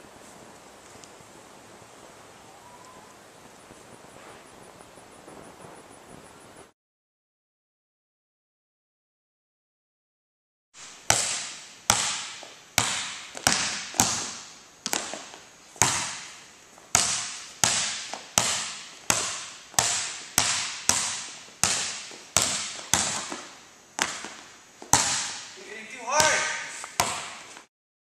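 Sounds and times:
basketball bouncing on gym floor: 11.1s - 27.5s.

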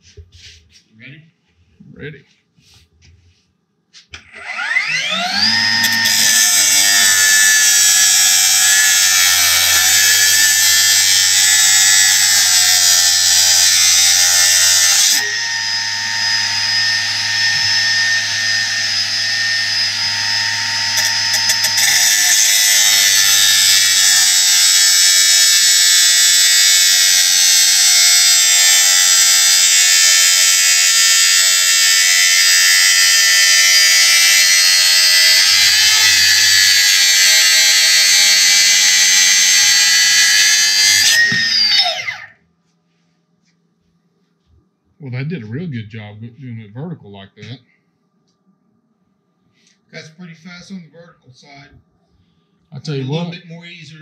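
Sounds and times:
cut-off saw whining: 4.2s - 42.4s.

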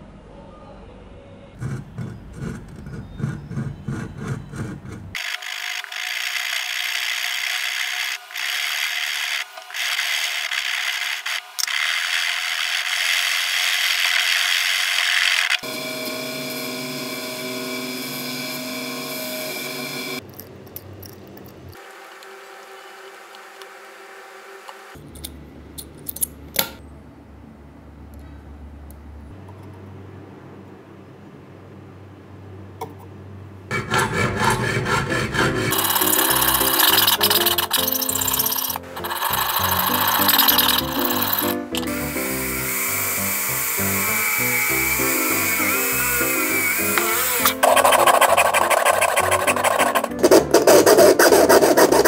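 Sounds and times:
file rasping on metal bar: 1.6s - 5.2s, 33.7s - 41.9s, 42.9s - 52.0s
small drill boring through metal: 5.1s - 20.2s, 35.7s - 50.2s
metallic clicks of parts: 25.1s - 26.8s.

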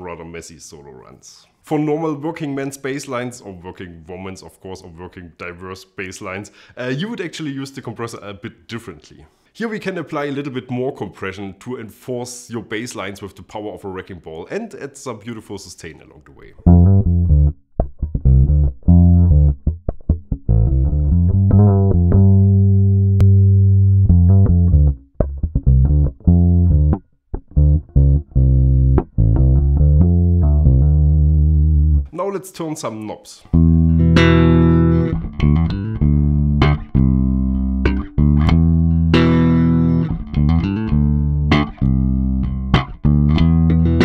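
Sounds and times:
electric bass line: 16.5s - 32.1s, 33.5s - 44.0s.

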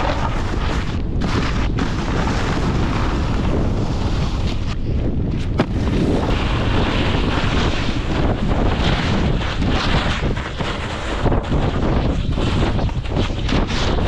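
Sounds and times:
snowboard scraping over snow: 0.0s - 14.0s
wind buffeting microphone: 0.0s - 14.0s.

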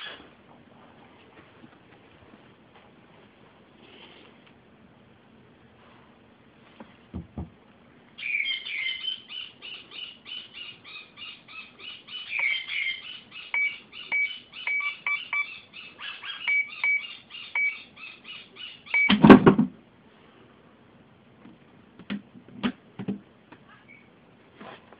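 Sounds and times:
keypad beeping: 13.6s - 15.5s, 16.4s - 17.8s, 18.9s - 19.2s.

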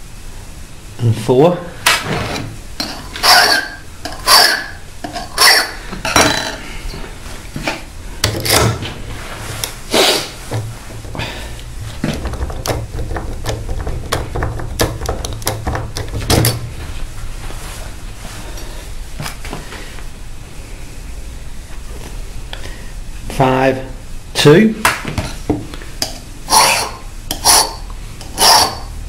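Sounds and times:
hand file rasping on metal: 3.2s - 5.8s, 26.5s - 28.9s.

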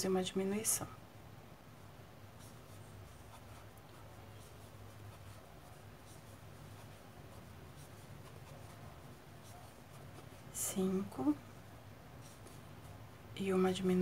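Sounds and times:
low steady hum: 0.0s - 14.0s
crochet hook scratching yarn: 2.3s - 11.4s, 12.2s - 13.0s.

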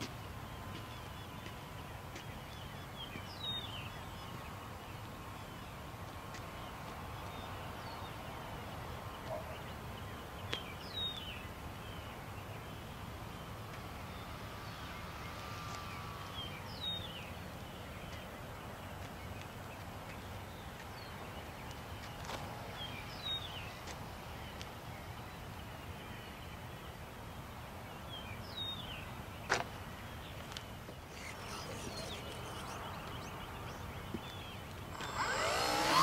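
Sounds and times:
distant model airplane motor whine: 13.3s - 17.3s, 31.1s - 36.0s.

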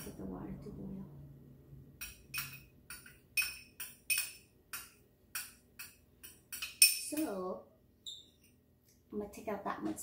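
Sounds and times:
metal spoon clinking on glass dish: 2.0s - 7.3s.

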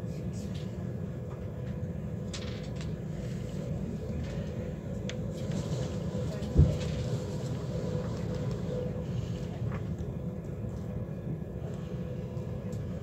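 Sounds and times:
faint hum: 0.0s - 13.0s
train running low rumble: 0.0s - 13.0s.

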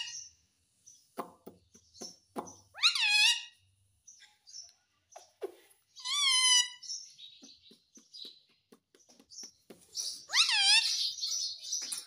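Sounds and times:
parakeet calls: 2.7s - 3.6s, 6.0s - 7.5s, 10.0s - 11.8s.

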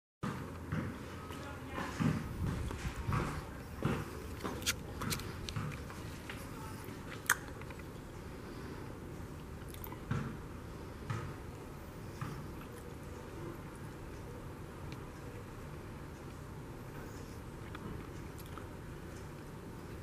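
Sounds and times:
footsteps on tile floor: 0.2s - 6.8s.

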